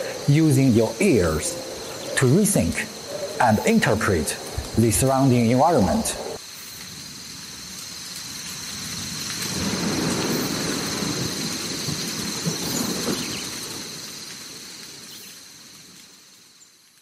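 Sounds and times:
thunder rumbling: 0.0 - 6.4, 8.7 - 14.0
rain: 0.0 - 17.0.

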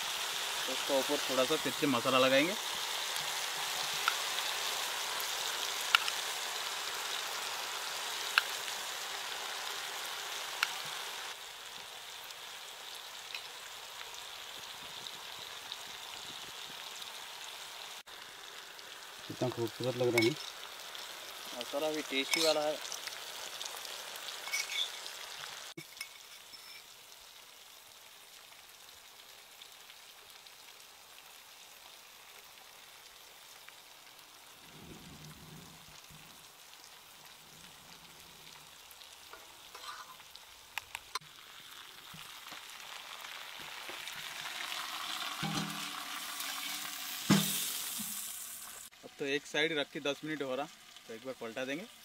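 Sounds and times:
fish sizzling in oil: 0.0 - 52.0
metal pot clank: 24.5 - 25.0, 45.4 - 48.2.

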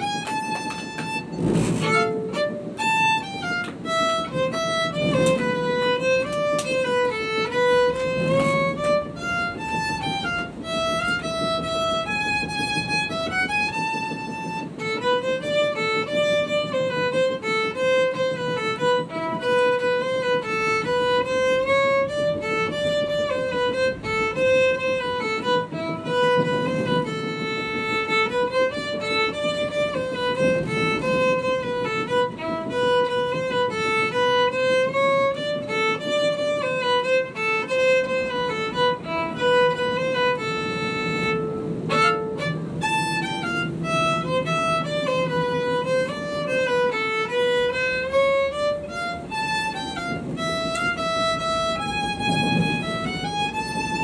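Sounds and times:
fiddle melody: 0.0 - 54.0
lower accompaniment: 0.0 - 54.0.

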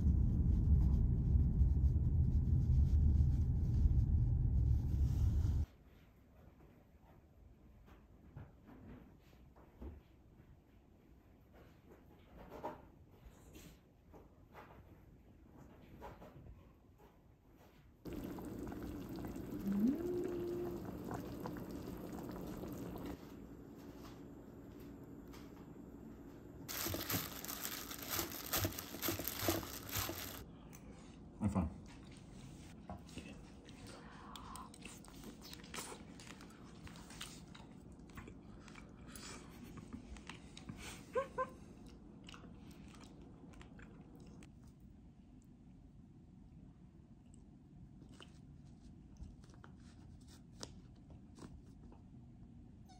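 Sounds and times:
low hum: 0.0 - 5.7, 18.1 - 31.2
plastic gloves rustling salad: 26.7 - 30.4.

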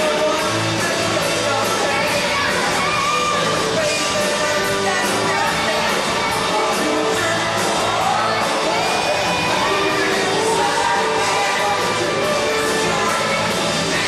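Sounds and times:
live rock band playing: 0.0 - 14.0
person singing: 0.0 - 14.0.

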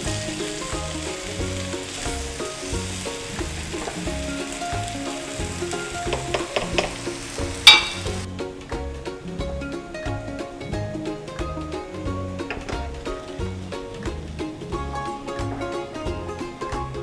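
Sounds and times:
rice and vegetables sizzling in a pot: 0.0 - 8.4.

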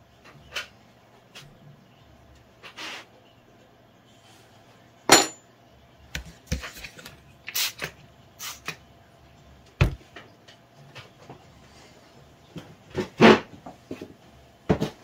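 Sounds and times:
spray bottle spritzing: 7.5 - 8.7.

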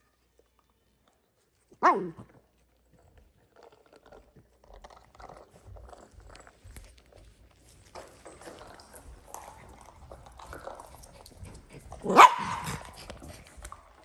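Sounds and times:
small dog barking: 1.8 - 2.3, 12.0 - 12.8.

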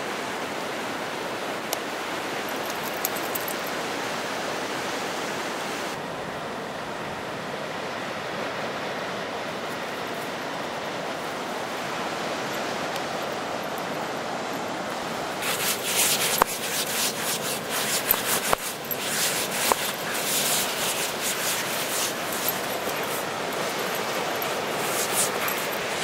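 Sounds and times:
dog digging in sand: 2.6 - 3.6, 15.4 - 26.0
surf hissing: 9.6 - 26.0.

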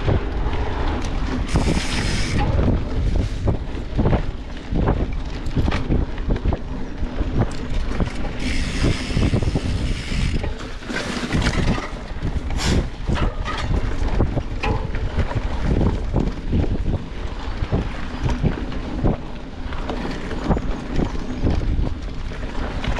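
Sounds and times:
steady low rumble: 0.0 - 20.0
bike knocks and rattles: 0.0 - 22.9
wind buffeting microphone: 0.0 - 22.9.

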